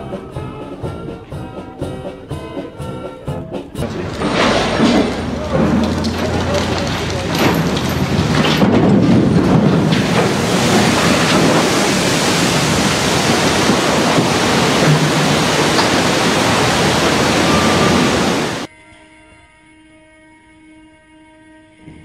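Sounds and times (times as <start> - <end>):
water splashing: 3.8 - 18.7.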